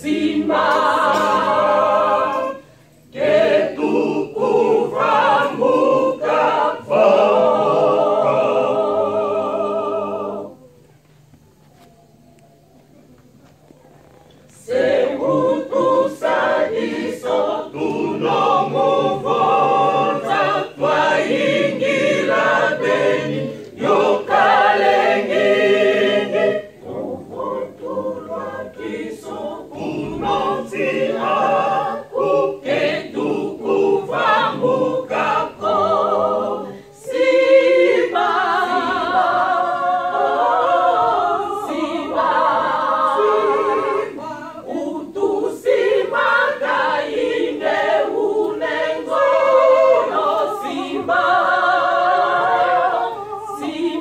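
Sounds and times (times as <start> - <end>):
mixed choir singing: 0.0 - 10.8, 14.5 - 54.0.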